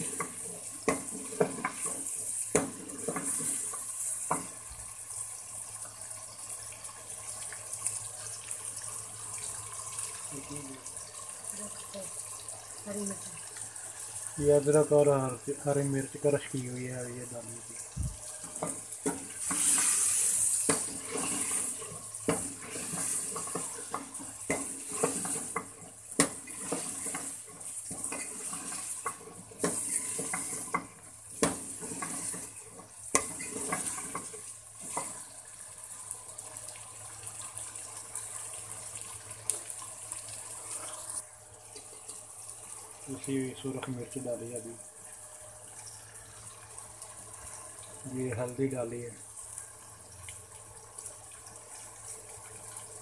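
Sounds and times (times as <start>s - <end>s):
food sizzling in hot oil: 0.0s - 53.0s
metal ladle scraping pot: 19.3s - 23.7s.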